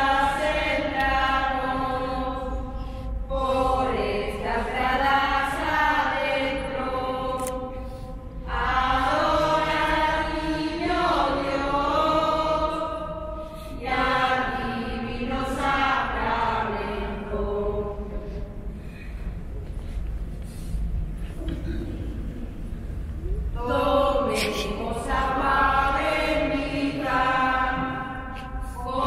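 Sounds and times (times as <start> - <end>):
group of people singing: 0.0 - 18.4, 23.6 - 29.0.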